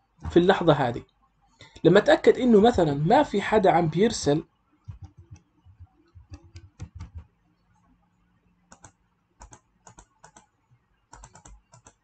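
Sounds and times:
computer keyboard typing clicks: 4.9s - 7.3s, 8.7s - 10.5s, 11.1s - 12.0s.

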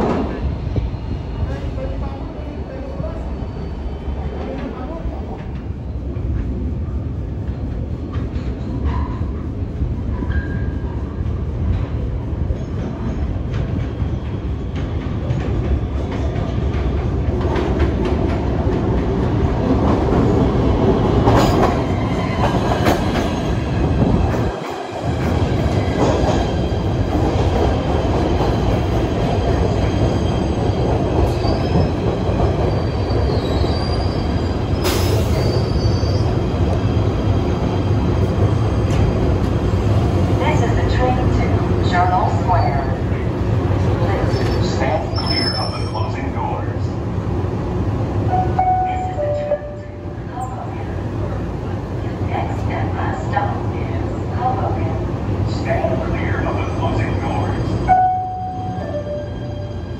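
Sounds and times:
train rumbling on rails: 0.0s - 59.9s
wheels squealing on rails: 8.4s - 16.6s, 29.4s - 37.1s, 43.8s - 46.7s.

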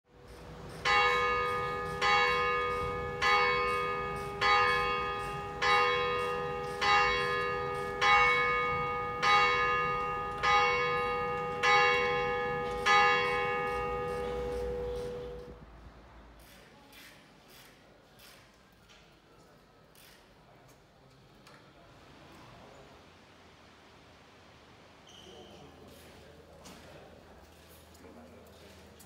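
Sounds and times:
church bell ringing: 0.7s - 15.6s.

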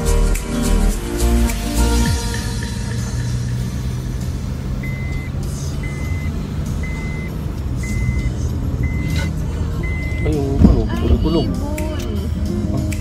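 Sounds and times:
engine and road noise hum: 0.0s - 13.0s
car warning beeper: 4.8s - 11.4s.

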